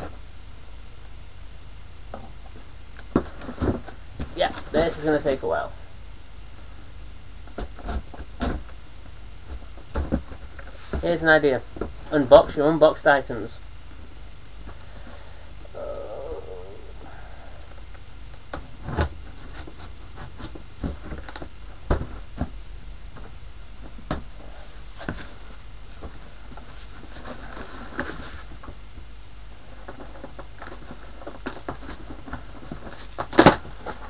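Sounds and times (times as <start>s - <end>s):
cardboard scraping and rustling: 18.6s - 22.5s, 24.4s - 28.8s.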